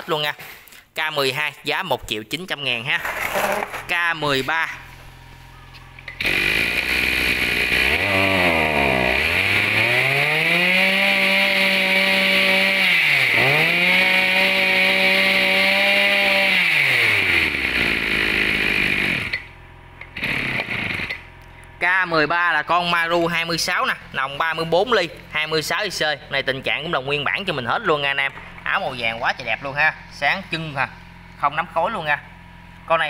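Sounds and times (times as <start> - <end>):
brush cutter engine revving: 5.9 - 21.5.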